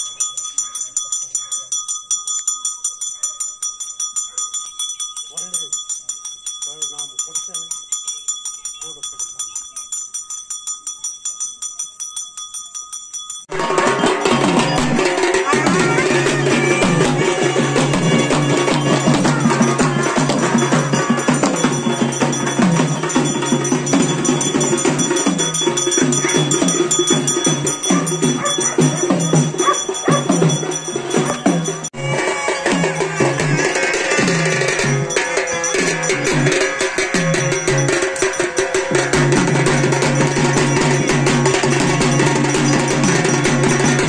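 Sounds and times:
bell ringing rapidly: 0:00.0 - 0:44.0
loud fast procession drumming: 0:13.5 - 0:44.0.

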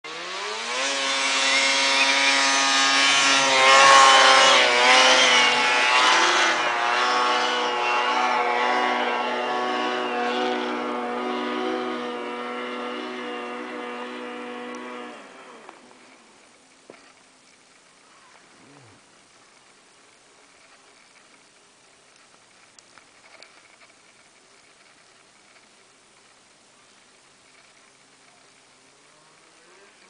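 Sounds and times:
snowmobile engine revving: 0:00.0 - 0:17.2.

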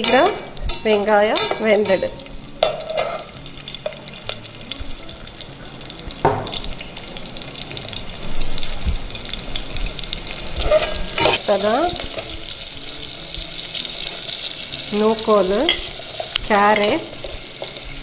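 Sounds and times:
metal spoon stirring: 0:00.0 - 0:04.1, 0:10.6 - 0:12.4, 0:15.7 - 0:18.0
shallots sizzling in hot oil: 0:00.0 - 0:18.0.

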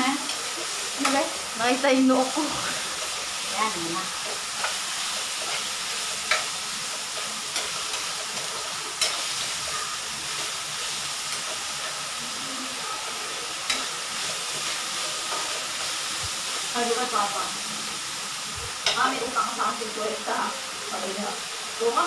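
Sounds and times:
meat sizzling in a wok: 0:00.0 - 0:22.0
metal utensil clicking on pan: 0:00.2 - 0:01.3, 0:04.2 - 0:10.6, 0:11.2 - 0:12.0, 0:13.6 - 0:15.6, 0:18.8 - 0:19.1.

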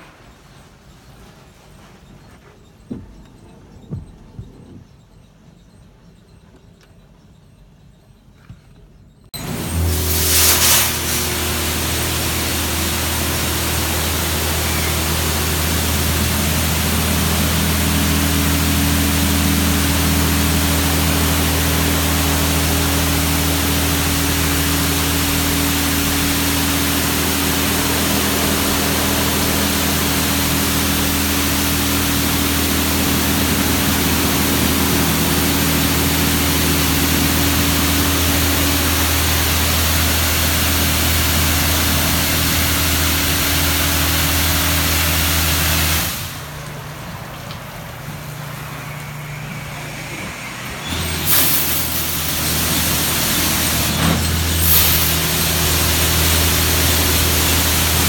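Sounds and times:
low machine hum: 0:00.0 - 0:58.0
higher hum: 0:09.4 - 0:54.2
water spraying from nozzles: 0:09.4 - 0:58.0.

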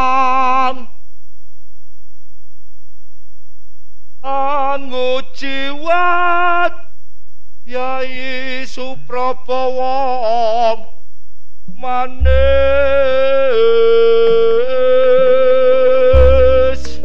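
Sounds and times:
person singing with vibrato: 0:00.0 - 0:01.0, 0:04.2 - 0:06.9, 0:07.7 - 0:11.0, 0:11.7 - 0:17.0
deep gong stroke: 0:12.2 - 0:13.1.

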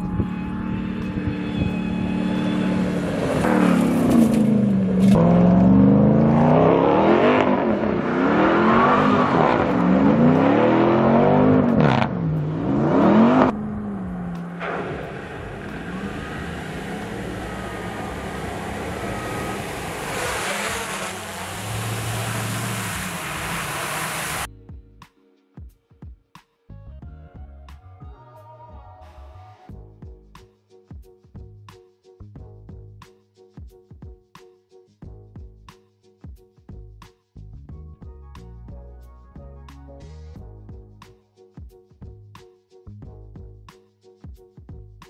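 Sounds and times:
truck engine revving hard: 0:00.5 - 0:24.5.

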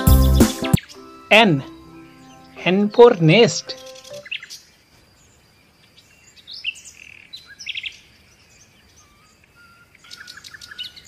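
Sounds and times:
baby chicks peeping: 0:00.0 - 0:04.4.

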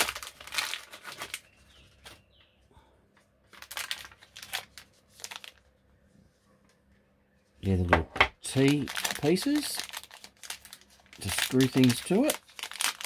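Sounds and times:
plastic bags crinkling: 0:00.0 - 0:02.4, 0:03.4 - 0:05.8, 0:08.4 - 0:13.0.

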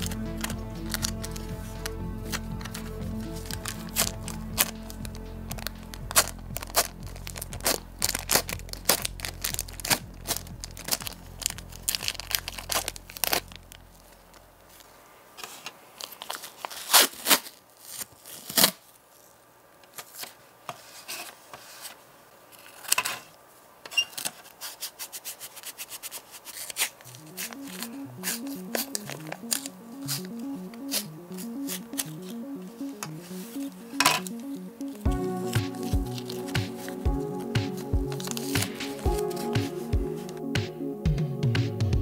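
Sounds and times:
background music: 0:00.0 - 0:13.5, 0:27.0 - 0:42.0
tape rubbed crackling: 0:00.0 - 0:13.6, 0:24.1 - 0:28.9
plastic film peeling crackle: 0:06.1 - 0:20.4.

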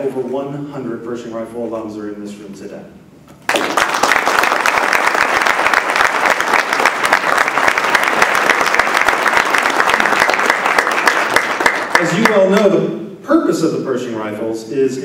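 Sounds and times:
large audience applauding: 0:03.4 - 0:12.5.

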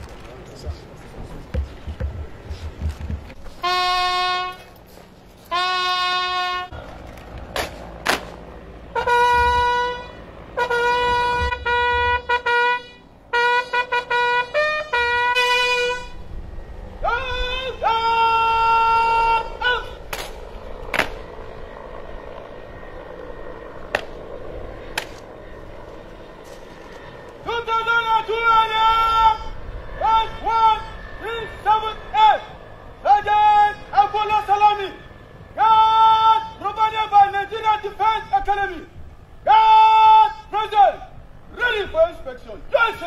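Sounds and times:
sharp knocks: 0:01.5 - 0:03.4
bugle call: 0:03.5 - 0:06.9, 0:08.8 - 0:16.3, 0:17.0 - 0:20.3, 0:26.6 - 0:38.8, 0:39.4 - 0:42.0.

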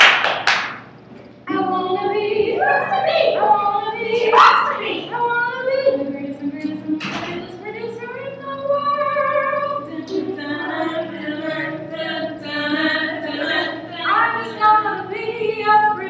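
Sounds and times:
women singing together: 0:01.5 - 0:16.0.

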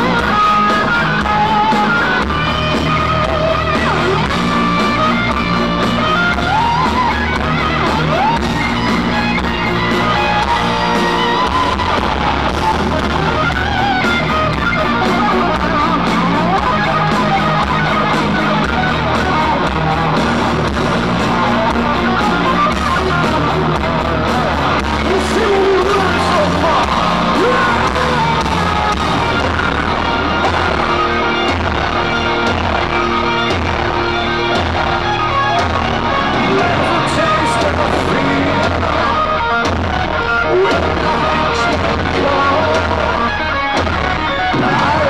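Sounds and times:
heavy metal band playing live: 0:00.0 - 0:45.0.

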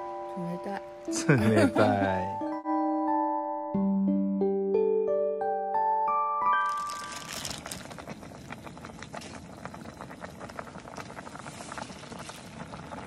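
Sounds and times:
broth bubbling in a pot: 0:06.5 - 0:13.0.

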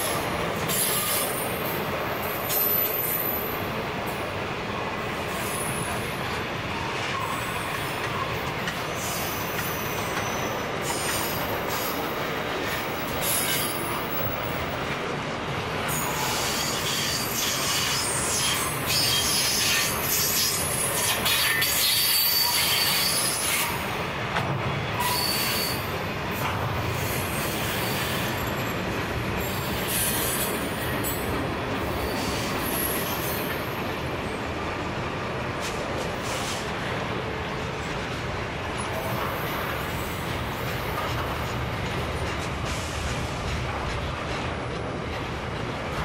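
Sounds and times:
freight train wheels on rails: 0:00.0 - 0:46.0
high-pitched wheel squeal: 0:21.8 - 0:23.8, 0:25.0 - 0:25.9.

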